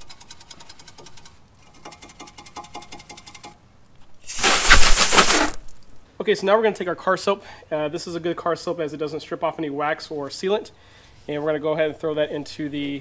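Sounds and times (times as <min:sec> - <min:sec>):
brush scrubbing metal: 0:04.3 - 0:05.6
hose spraying water: 0:04.3 - 0:05.7.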